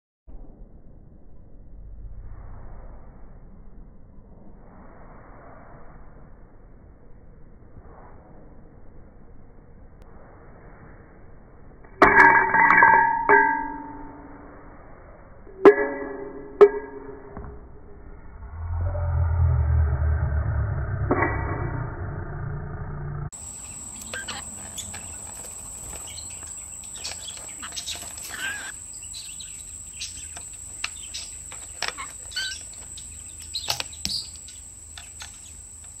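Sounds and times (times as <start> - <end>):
parrot chirping calls: 23.4 - 35.7.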